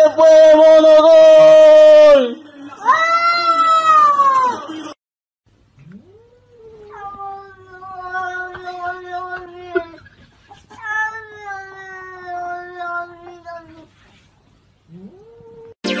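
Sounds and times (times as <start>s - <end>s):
cat yowling: 5.9s - 10.0s.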